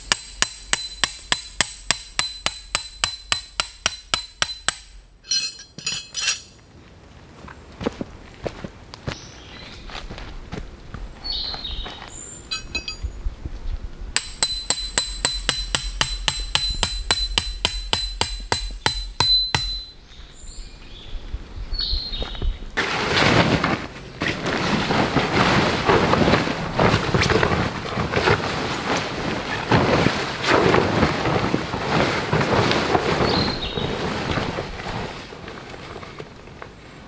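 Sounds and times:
hammer striking metal tent peg: 0.0s - 6.5s, 14.2s - 19.9s
tent fabric rustling and flapping: 22.8s - 36.4s.

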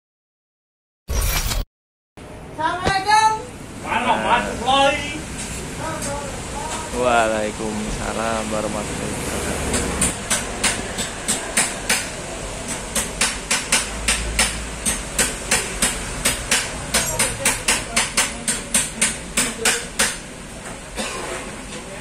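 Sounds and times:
rapid sharp knocks: 9.7s - 20.2s.

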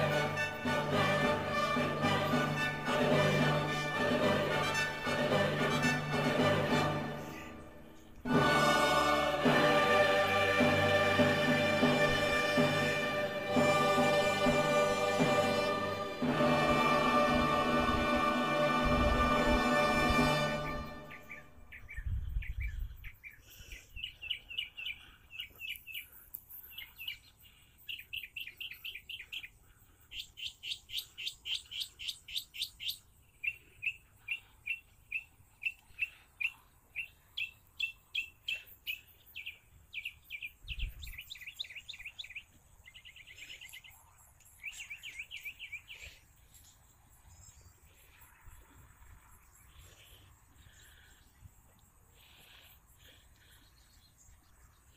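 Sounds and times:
small birds chirping: 20.8s - 54.9s.

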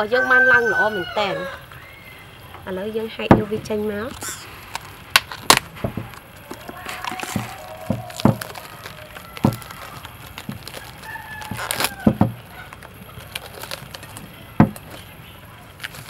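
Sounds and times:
rooster crowing: 0.0s - 2.4s, 6.5s - 12.8s
cling film crinkling: 3.6s - 16.0s.

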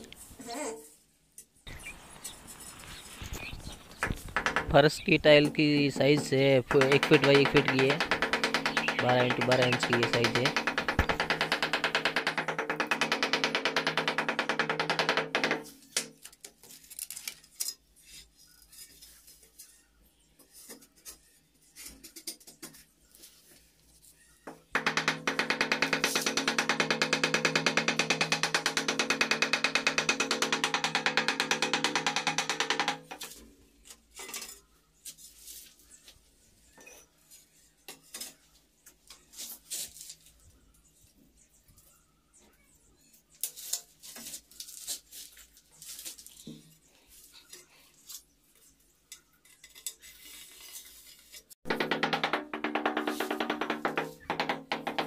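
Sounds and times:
tiles clinking and knocking: 4.0s - 16.2s
wooden handle tapping tile: 5.4s - 15.3s, 51.7s - 55.0s.

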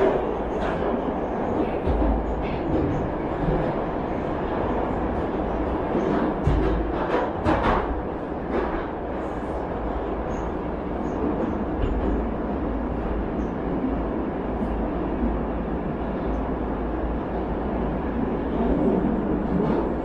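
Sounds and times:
subway train rumble: 0.0s - 20.0s.

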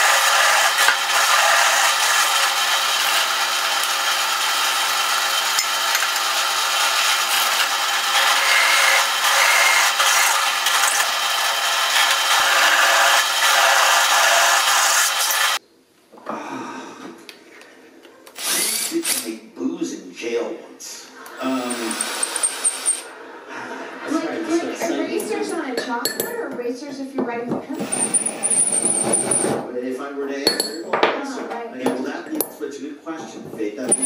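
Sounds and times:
drill press cutting steel: 0.0s - 15.6s, 18.4s - 19.3s, 21.4s - 23.1s, 27.8s - 29.5s
steel pieces being handled: 21.6s - 23.1s.

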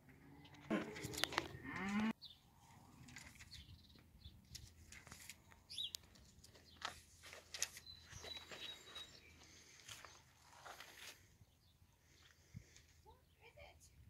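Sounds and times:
cow mooing: 0.2s - 2.1s
faint clicks and rustles: 2.9s - 11.3s.

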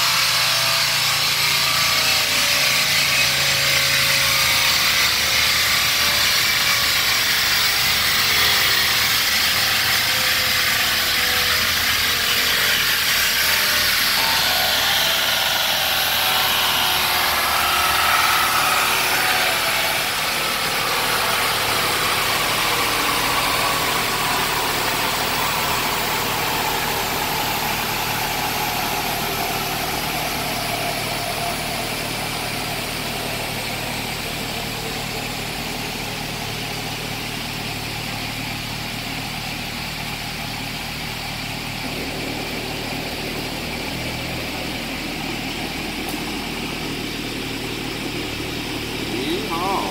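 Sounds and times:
falling whine: 6.0s - 49.9s
car engine running at low revs: 20.2s - 49.9s.

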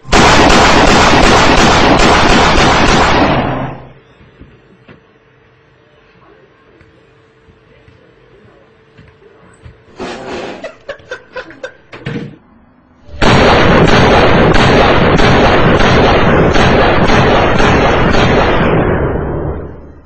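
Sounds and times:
rapid gunshots: 0.0s - 4.0s, 13.1s - 19.7s.

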